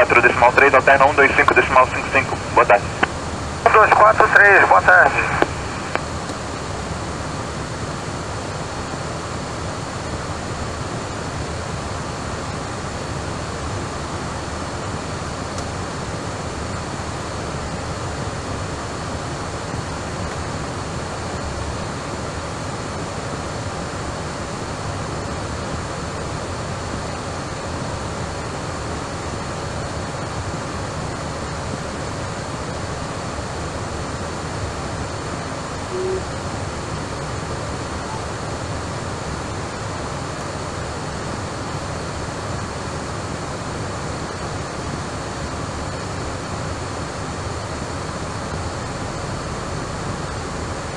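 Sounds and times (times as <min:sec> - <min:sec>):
air traffic control transmissions: 0:00.0 - 0:46.6
radio static hiss: 0:00.0 - 0:50.9
short tone: 0:35.9 - 0:36.4.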